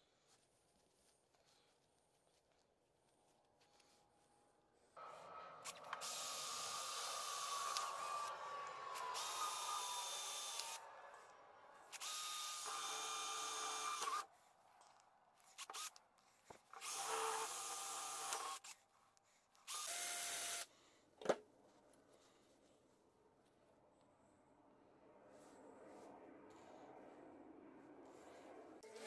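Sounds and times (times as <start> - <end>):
cordless drill motor whine: 5.6 - 11.1, 11.9 - 14.3, 16.8 - 18.7, 19.7 - 20.7.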